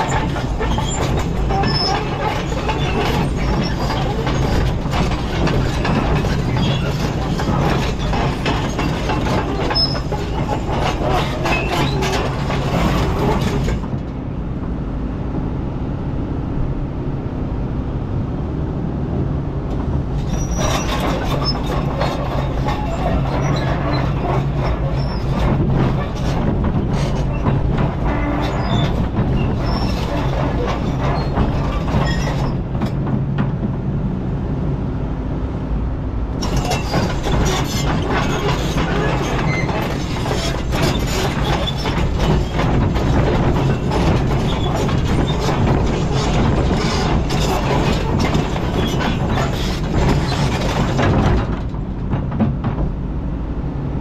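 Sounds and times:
bucket scraping and clanking on rocks: 0:00.0 - 0:13.8, 0:36.4 - 0:51.7
excavator diesel engine running: 0:00.0 - 0:54.0.

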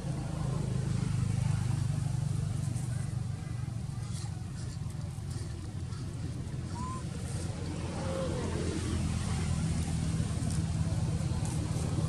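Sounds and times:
engine running hum: 0:00.0 - 0:12.0.

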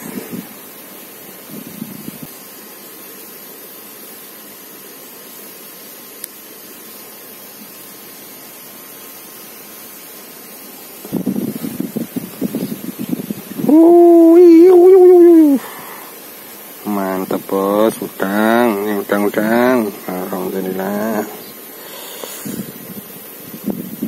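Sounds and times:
steady background hiss: 0:00.0 - 0:24.0
faint click: 0:06.2 - 0:06.4.

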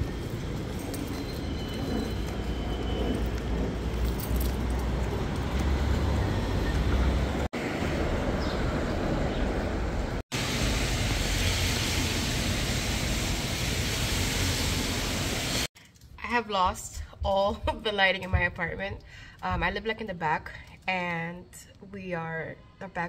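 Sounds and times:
traffic rumble: 0:00.0 - 0:15.4.

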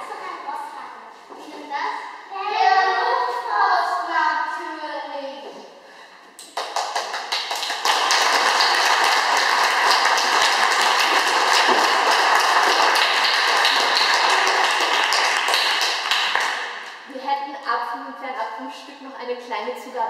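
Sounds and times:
audience applauding: 0:06.4 - 0:17.0.

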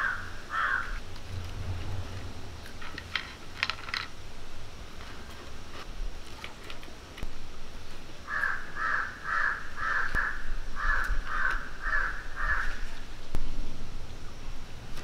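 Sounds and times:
crow cawing: 0:00.0 - 0:01.0, 0:08.3 - 0:13.0.

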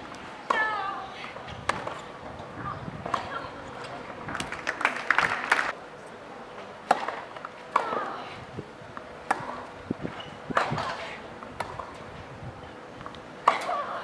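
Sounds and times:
tennis ball hit by rackets: 0:06.9 - 0:08.0.

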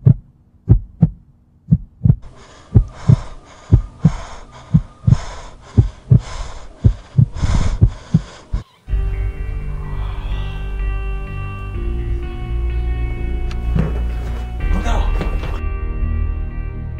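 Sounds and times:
heartbeat thumps: 0:00.0 - 0:08.6
pulsing hiss: 0:02.2 - 0:11.9.

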